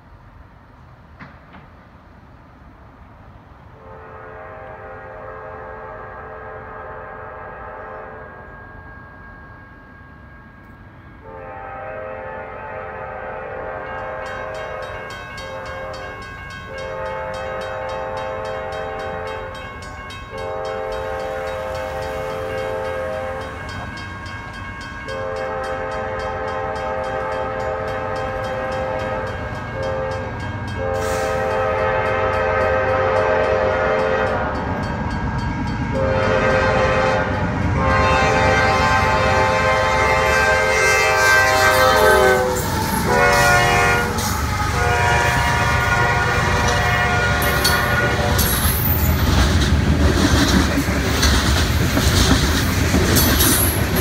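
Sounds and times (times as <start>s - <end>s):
diesel locomotive engines: 0.0s - 54.0s
train rumble: 0.0s - 54.0s
train air horn blasts: 3.7s - 8.7s, 11.2s - 23.7s, 24.7s - 34.9s, 35.8s - 49.1s.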